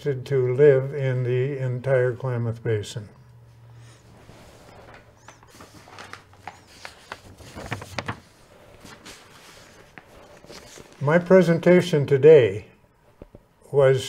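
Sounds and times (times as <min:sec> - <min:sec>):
faint clicks and rustles: 0:04.3 - 0:11.0.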